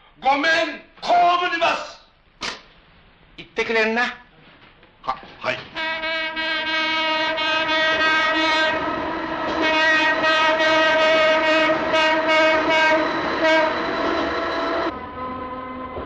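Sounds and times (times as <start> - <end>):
train horn blast: 5.8 - 16.0.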